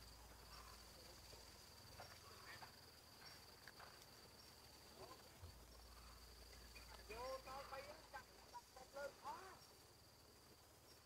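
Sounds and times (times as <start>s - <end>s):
soft ticks: 6.5s - 7.1s.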